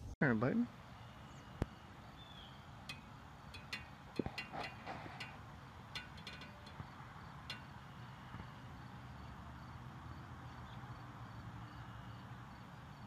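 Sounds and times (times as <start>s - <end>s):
high ticks and chirps: 0.8s - 9.9s.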